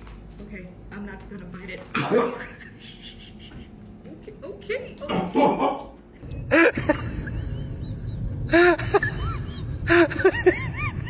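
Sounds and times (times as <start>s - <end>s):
low rumble: 6.2s - 11.0s.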